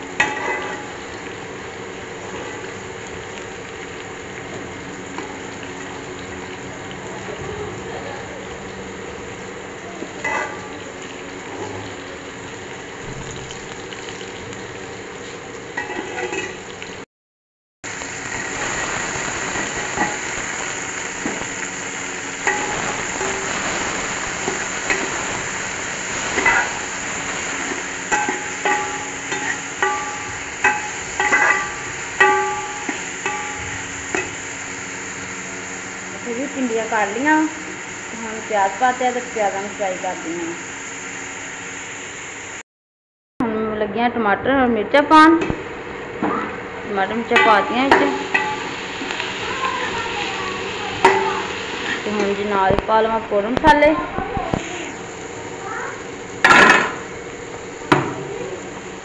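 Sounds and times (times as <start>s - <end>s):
vegetables sizzling in oil: 0.0s - 17.0s, 17.8s - 42.6s, 45.0s - 59.0s
ladle scraping pot: 15.8s - 16.6s.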